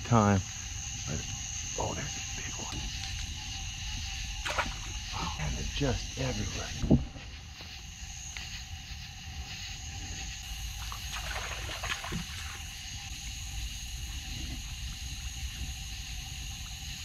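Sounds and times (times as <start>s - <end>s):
insects and frogs trilling: 0.0s - 17.0s
wading through shallow water: 10.7s - 12.7s.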